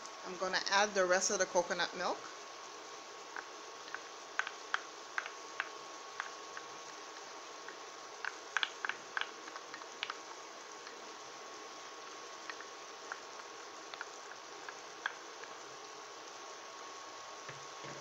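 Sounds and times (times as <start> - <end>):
thin steady whine: 0.0 - 18.0
food popping and crackling in a pan: 3.2 - 16.8.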